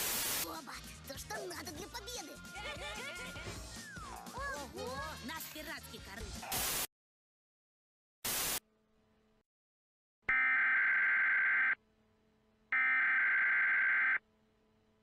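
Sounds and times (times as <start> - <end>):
static burst: 0.0 - 0.4, 6.5 - 6.9, 8.2 - 8.6.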